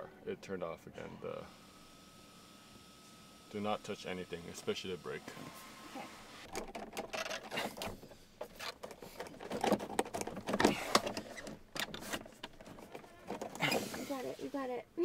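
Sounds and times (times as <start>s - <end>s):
clicks and knocks on plastic trim: 6.5s - 13.6s.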